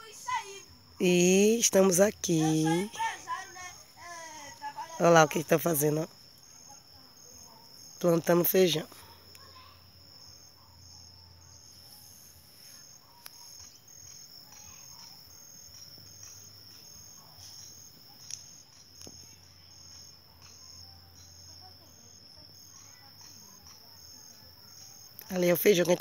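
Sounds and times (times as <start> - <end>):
insects chirping: 0.0 - 26.0.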